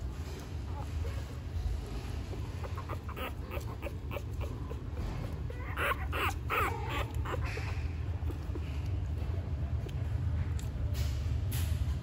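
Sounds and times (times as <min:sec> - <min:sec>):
puppies squeaking and whimpering: 0:00.3 - 0:09.2.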